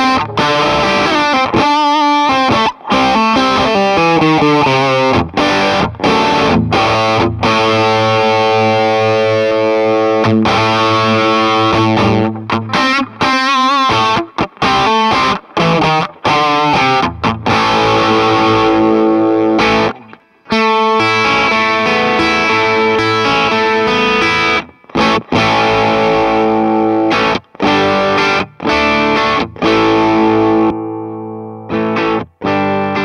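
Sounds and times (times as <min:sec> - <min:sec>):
distorted electric guitar chords: 0:00.0 - 0:33.0.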